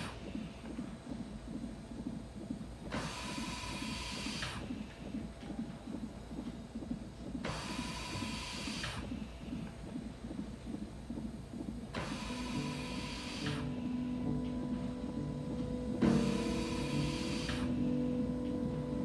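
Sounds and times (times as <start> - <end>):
mechanical hiss with whine: 11.9 - 19.0.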